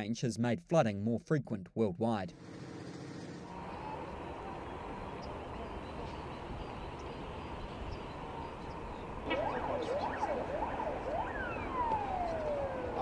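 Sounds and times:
steady background noise: 0:02.3 - 0:13.0
emergency vehicle siren: 0:03.4 - 0:13.0.

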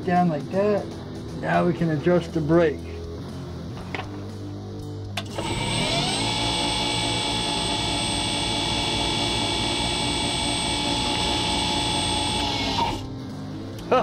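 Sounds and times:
motor whining: 0:05.1 - 0:13.2
motor braking to a stop: 0:05.2 - 0:13.1.

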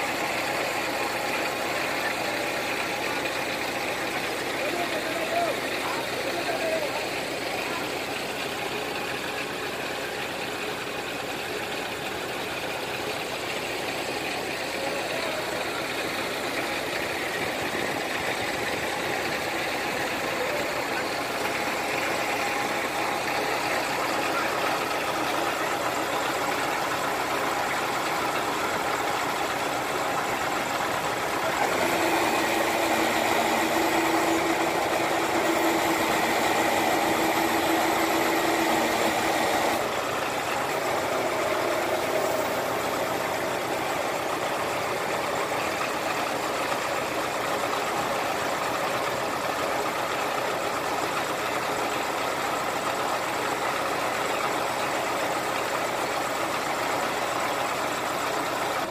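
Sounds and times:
crane engine running: 0:00.0 - 0:58.9.

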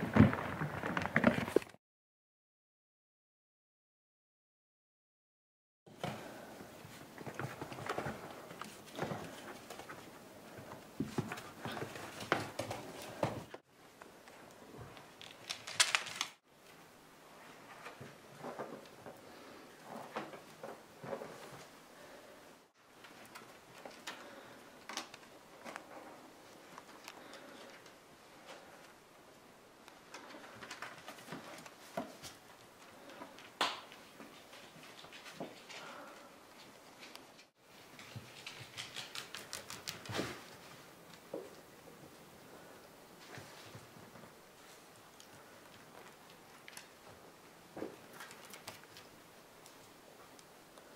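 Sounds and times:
puppies' paws pattering and scratching: 0:00.0 - 0:01.7, 0:06.0 - 0:22.2, 0:22.9 - 0:50.9
dog claws clicking on wooden floor: 0:38.0 - 0:40.4.

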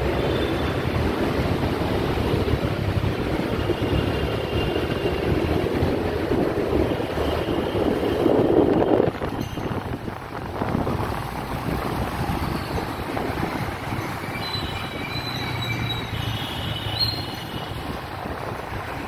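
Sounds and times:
road traffic rumbling: 0:00.0 - 0:19.0
wind buffeting microphone: 0:05.2 - 0:15.9.

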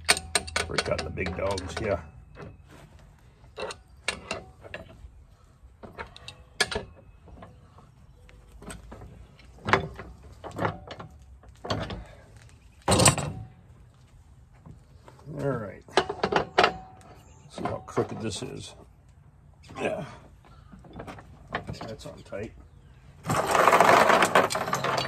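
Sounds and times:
metal clatter: 0:00.0 - 0:02.6, 0:23.2 - 0:25.0
metal tools clinking and knocking: 0:00.0 - 0:02.6, 0:03.4 - 0:05.1, 0:05.8 - 0:07.6, 0:15.9 - 0:18.6, 0:23.3 - 0:25.0.

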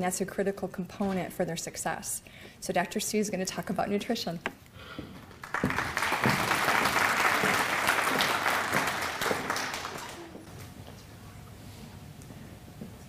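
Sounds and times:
audience applauding: 0:05.3 - 0:10.5.

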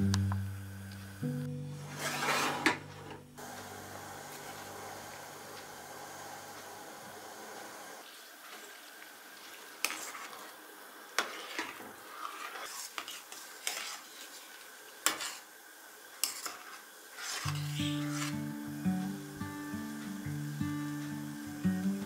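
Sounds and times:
simmering syrup hiss: 0:03.4 - 0:22.0.

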